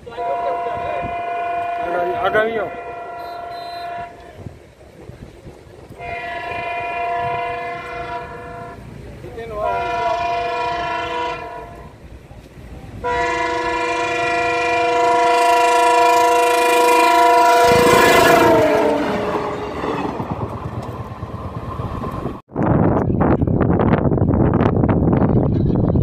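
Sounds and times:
locomotive horn blasts: 0.0 - 4.5, 5.9 - 8.9, 9.5 - 12.0, 13.0 - 19.6
locomotive rumbling and clattering past: 0.0 - 26.0.

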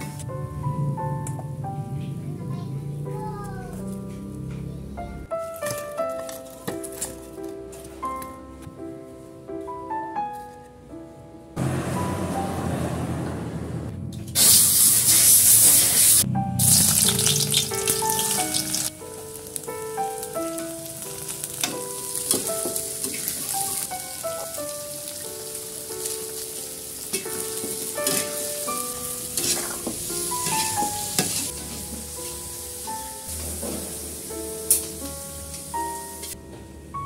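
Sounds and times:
gentle background melody: 0.0 - 37.0
beans sizzling in hot oil: 14.4 - 36.4.

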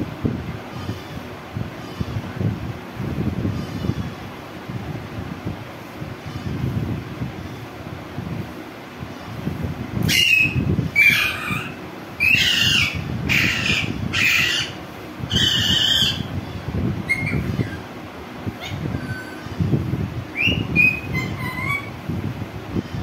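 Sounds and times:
parakeet chirps and whistles: 10.0 - 16.3, 17.0 - 17.8, 20.3 - 22.0
parakeet screeching: 10.0 - 16.3, 17.0 - 17.9, 18.6 - 19.6, 20.4 - 22.0.

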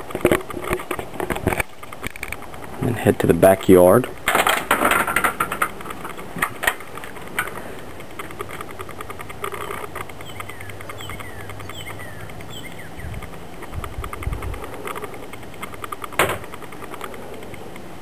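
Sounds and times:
low mechanical hum: 0.0 - 18.0
birds calling: 0.6 - 18.0
screen door clattering: 4.0 - 7.7, 14.6 - 16.7.

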